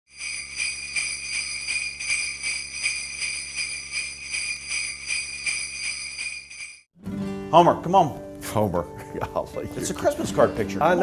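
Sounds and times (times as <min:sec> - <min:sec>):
sleigh bells jingling: 0:00.1 - 0:06.9.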